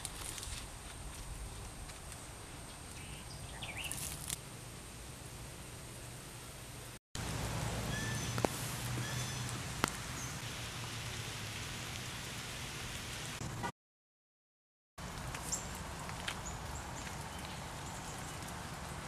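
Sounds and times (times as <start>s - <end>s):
rain falling: 7.2s - 13.7s, 15.0s - 19.0s.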